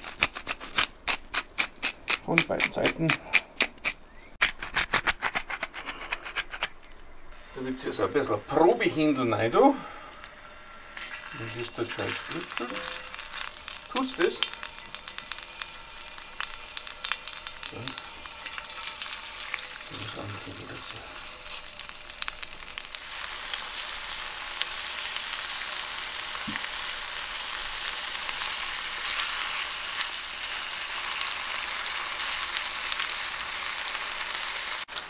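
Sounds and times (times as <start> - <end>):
chicken sizzling in hot oil: 10.4 - 35.0.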